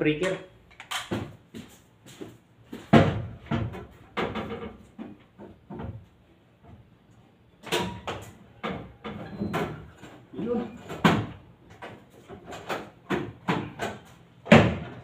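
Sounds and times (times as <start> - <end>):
breaker panel door knocks: 14.5 - 15.0.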